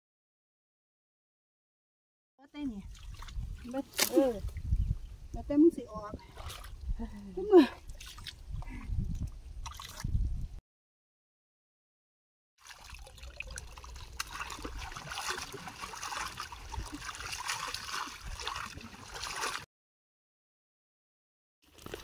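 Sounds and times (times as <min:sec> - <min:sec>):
muddy water sloshing and trickling: 0:02.6 - 0:10.6, 0:12.6 - 0:19.7, 0:21.6 - 0:22.0.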